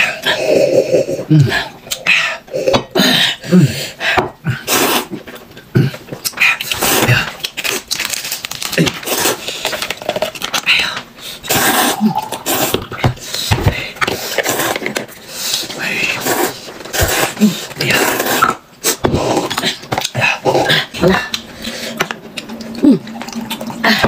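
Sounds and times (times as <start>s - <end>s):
person grunting and humming: 0.0s - 4.6s, 19.0s - 21.4s, 22.8s - 23.2s
noodles slurped: 11.4s - 13.5s, 14.1s - 24.0s
drinking gulps: 11.6s - 13.1s, 18.4s - 24.0s.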